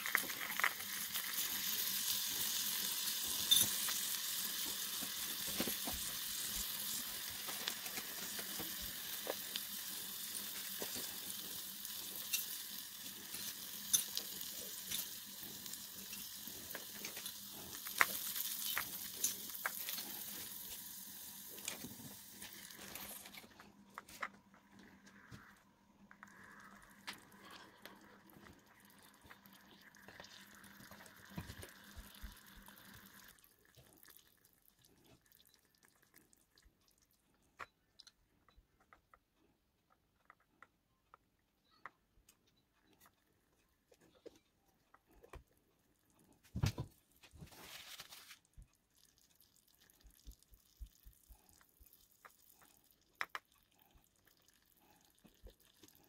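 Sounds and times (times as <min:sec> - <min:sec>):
water poured into pot: 0:00.0 - 0:23.5, 0:26.2 - 0:36.3
light cooking hiss: 0:00.0 - 0:35.3.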